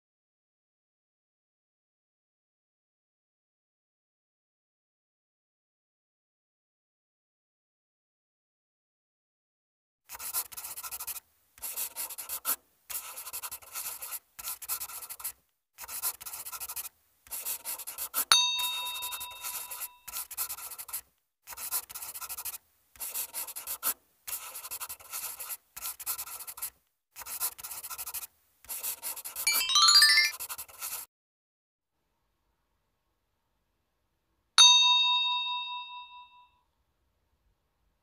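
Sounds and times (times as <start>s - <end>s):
felt-tip marker scratching: 10.1s - 18.3s, 18.9s - 29.5s, 30.3s - 31.1s
bell ding: 18.3s - 20.0s, 34.6s - 36.5s.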